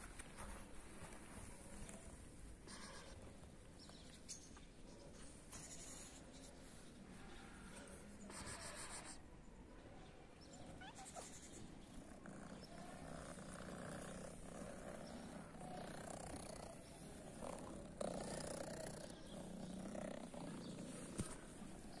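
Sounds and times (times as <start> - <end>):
cat purring: 11.8 - 22.0.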